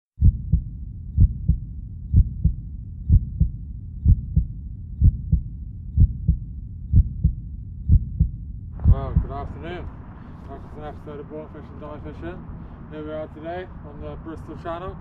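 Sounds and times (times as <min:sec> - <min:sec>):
heartbeat double thump: 0:00.2 - 0:09.6
steady low rumble: 0:00.2 - 0:15.0.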